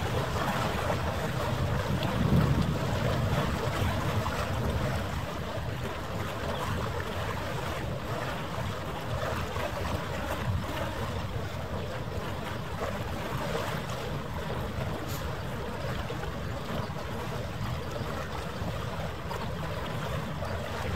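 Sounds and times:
wind on microphone: 0.0 - 20.9.

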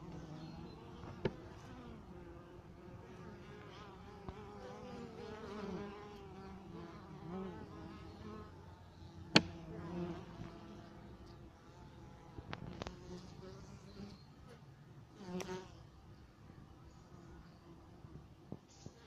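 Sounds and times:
honeybees buzzing: 0.0 - 14.6.

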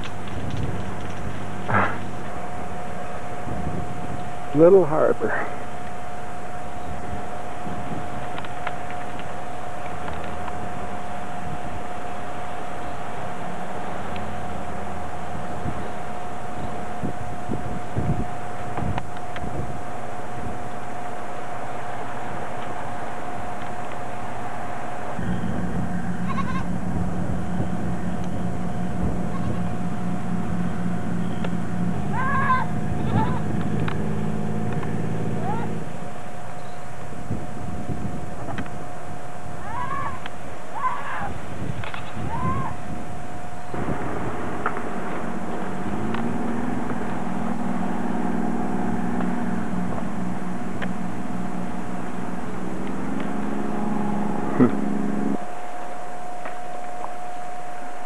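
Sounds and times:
low mechanical hum: 0.0 - 58.0
faint animal call: 39.6 - 42.8.

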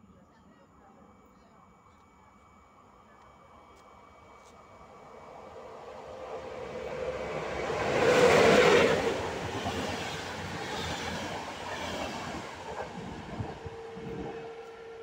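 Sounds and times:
faint steady tone: 0.0 - 7.0
locomotive rushing past: 4.9 - 15.0.

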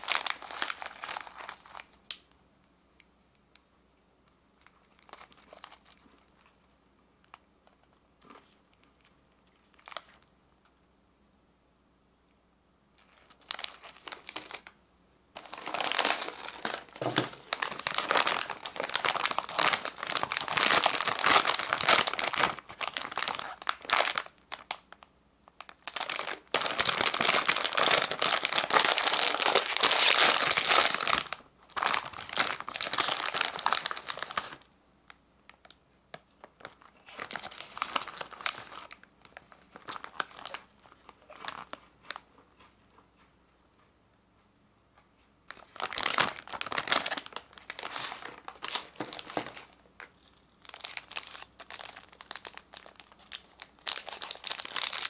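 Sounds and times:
snack packets crinkling: 0.0 - 2.2, 4.6 - 6.5, 13.0 - 14.8, 15.4 - 25.0, 25.6 - 34.7, 36.4 - 42.2, 45.5 - 55.0.

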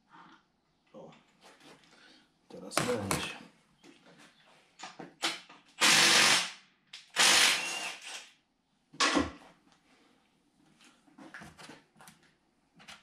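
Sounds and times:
power tool running in bursts: 5.8 - 6.5, 7.2 - 8.2.

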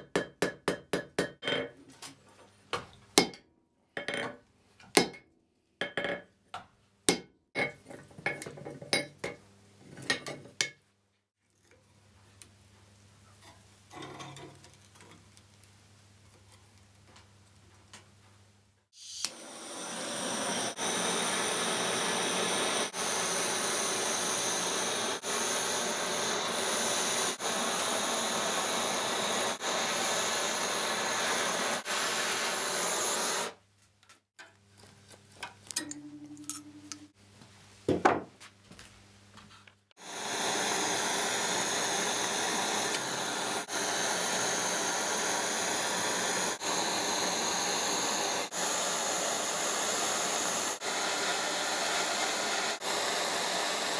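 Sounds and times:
blowtorch hissing: 19.0 - 33.6, 40.0 - 53.9.

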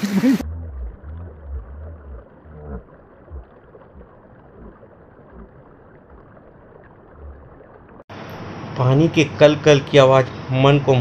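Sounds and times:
low bumps: 0.0 - 8.0.

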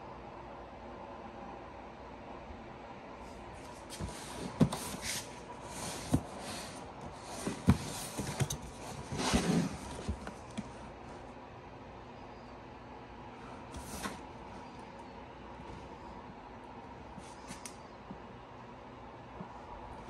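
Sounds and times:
cardboard rustle: 3.7 - 10.8
cardboard knocks and scrapes: 3.9 - 10.7.

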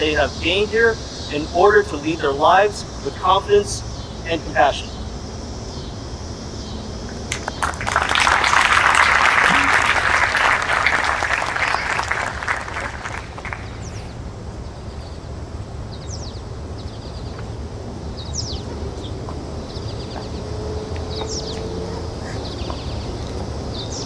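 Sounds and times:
low outdoor rumble: 0.0 - 24.0
audience applause: 7.3 - 13.9.

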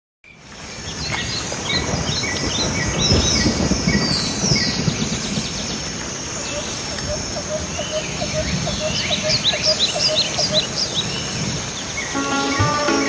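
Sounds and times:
bird chirping: 6.4 - 13.0.

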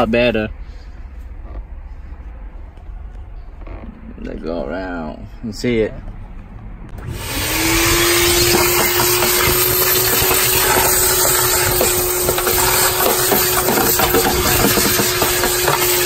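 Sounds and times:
motor spinning: 7.0 - 16.0.

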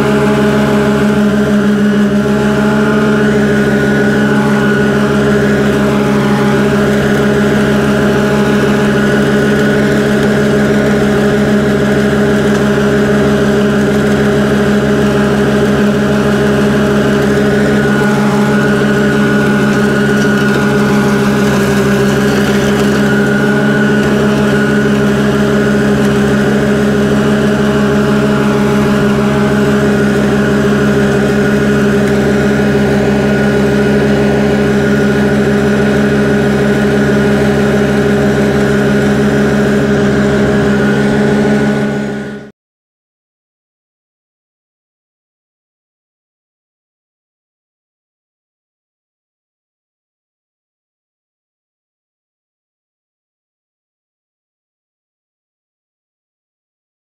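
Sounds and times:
ride-on mower engine droning: 0.0 - 42.5.

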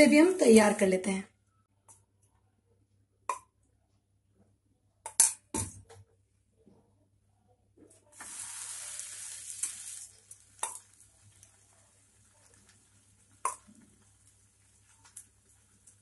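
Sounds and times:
ghee sizzling on a hot griddle: 8.2 - 16.0.

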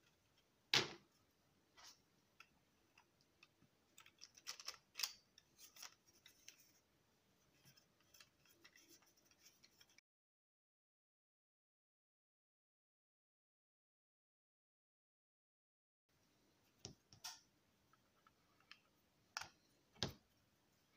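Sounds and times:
plastic parts clicking: 2.4 - 6.6.

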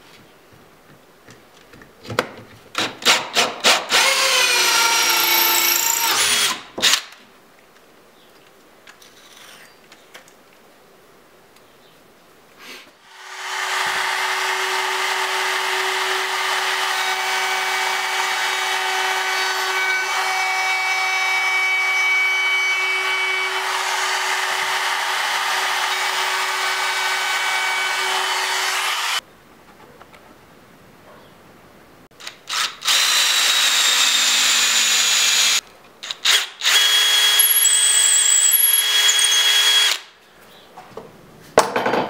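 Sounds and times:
router whining while cutting wood: 4.0 - 6.6, 13.2 - 29.2.

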